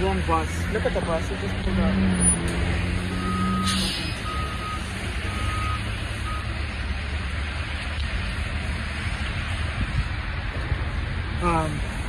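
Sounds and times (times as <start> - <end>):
street traffic: 0.0 - 12.0
bus high beeps: 3.2 - 6.6
bus engine idling rumble: 3.2 - 12.0.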